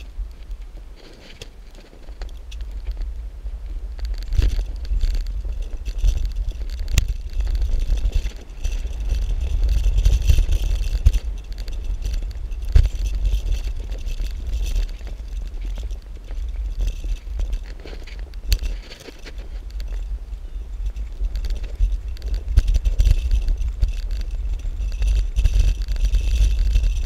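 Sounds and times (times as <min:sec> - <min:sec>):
bicycle rattling: 0:00.0 - 0:27.0
wind rumble on microphone: 0:00.0 - 0:27.0.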